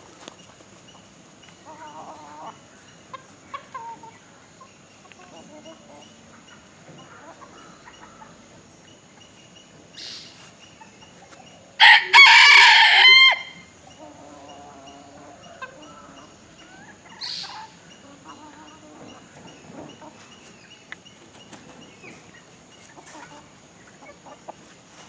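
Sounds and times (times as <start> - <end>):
hens clucking: 0.0 - 25.0
rooster crowing: 11.8 - 13.7.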